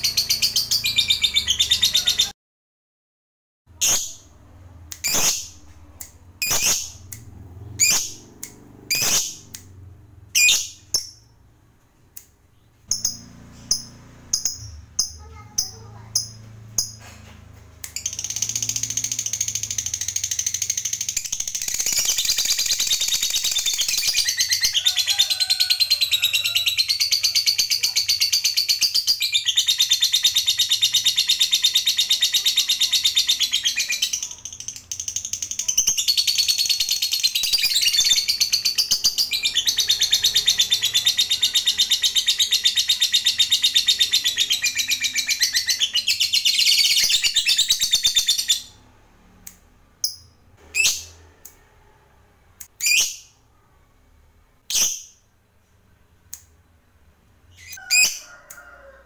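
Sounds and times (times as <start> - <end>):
lovebird chirps: 0.0 - 2.4, 3.8 - 11.4, 12.2 - 17.1, 17.8 - 25.2, 25.8 - 48.8, 52.6 - 53.4
rapid chattering bird trill: 6.4 - 9.6, 17.9 - 48.6.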